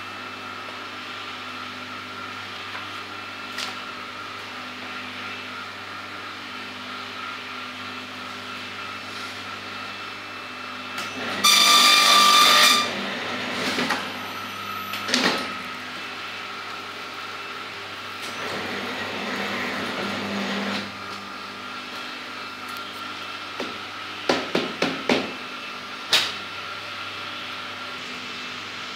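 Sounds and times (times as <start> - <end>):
binding machine humming: 10.8 - 25.4
loud harsh rasp: 11.4 - 13.0.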